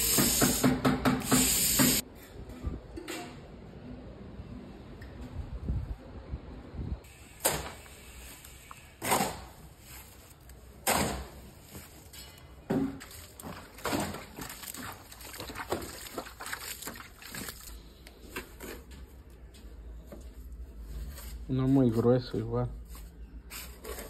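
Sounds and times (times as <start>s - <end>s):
wet mortar slaps and scrapes: 13.0s - 18.9s.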